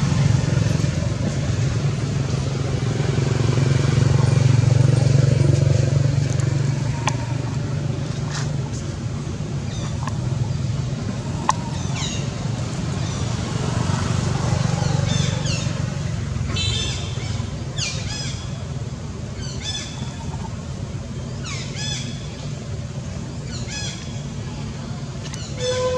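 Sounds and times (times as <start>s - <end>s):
low motor hum: 0.0s - 16.4s.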